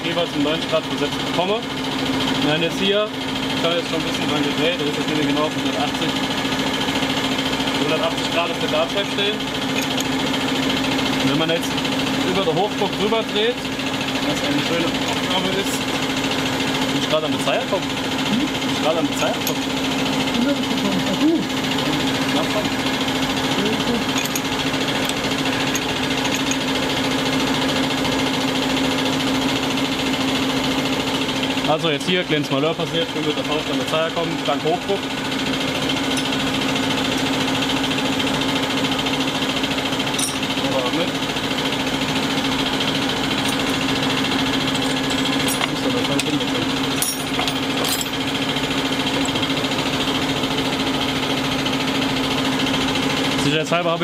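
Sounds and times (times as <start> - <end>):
machine humming steadily: 0.0 - 54.0
metal parts clicking: 9.7 - 10.2, 24.0 - 26.7, 40.1 - 40.5, 43.4 - 43.8, 44.7 - 46.3, 46.9 - 48.2.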